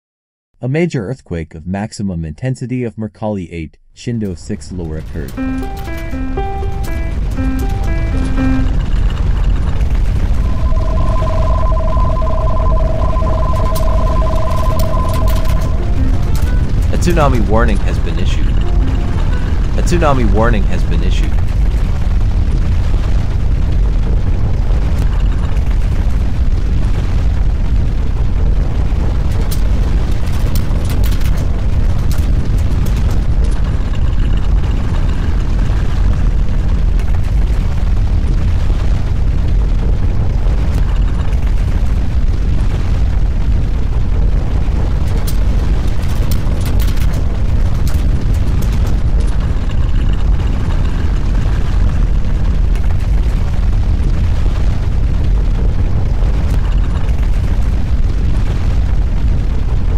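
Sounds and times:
deep earthquake rumble: 20.6s - 59.9s
faint rattling crackles: 44.9s - 55.5s.

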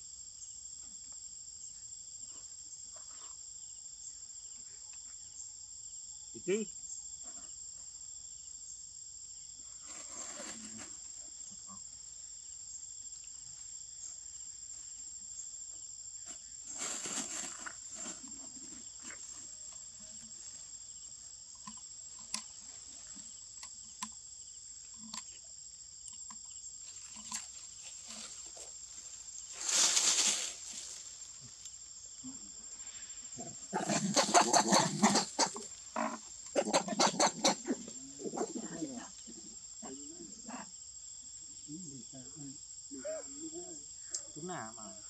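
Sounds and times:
insect chorus: 0.0s - 45.0s
short rustling bursts: 27.8s - 31.4s.

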